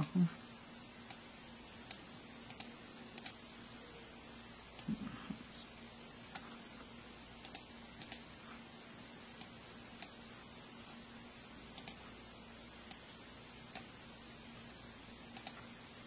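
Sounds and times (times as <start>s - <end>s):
faint steady hum: 0.0s - 16.0s
computer mouse clicks: 1.0s - 1.2s, 1.8s - 3.4s, 7.4s - 8.3s, 9.4s - 10.2s, 11.7s - 12.0s, 12.8s - 13.0s, 13.7s - 13.9s, 15.3s - 15.7s.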